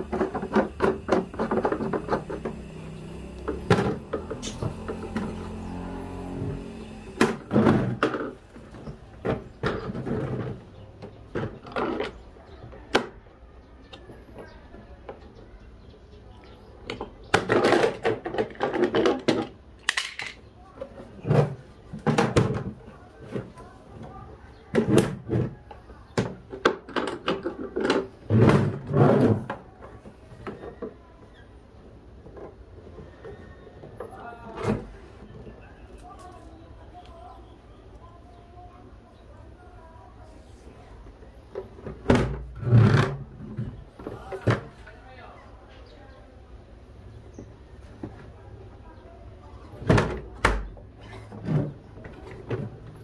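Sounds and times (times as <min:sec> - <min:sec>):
plastic parts knocking and clattering: 0:00.0 - 0:02.7, 0:07.1 - 0:12.2, 0:16.8 - 0:31.0, 0:49.8 - 0:53.0
plastic scraping: 0:00.0 - 0:12.3, 0:17.0 - 0:31.0, 0:41.5 - 0:44.8
plastic sliding and rattling: 0:16.9 - 0:31.0.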